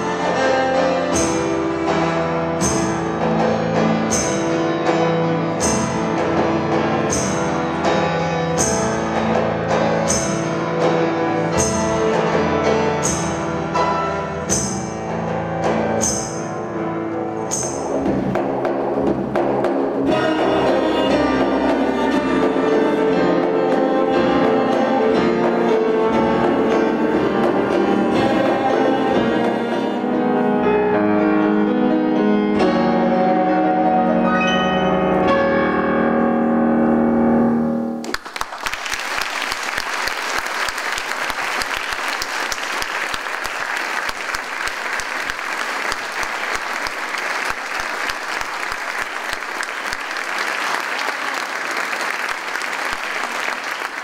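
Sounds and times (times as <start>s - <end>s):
grand piano playing: 0.0s - 54.0s
audience applause: 38.0s - 54.0s.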